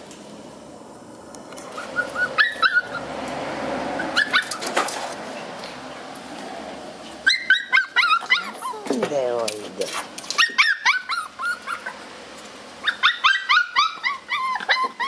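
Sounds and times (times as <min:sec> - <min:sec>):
puppies yipping and whining: 0:01.6 - 0:03.3, 0:03.9 - 0:04.8, 0:07.2 - 0:09.1, 0:10.3 - 0:12.2, 0:12.8 - 0:15.0.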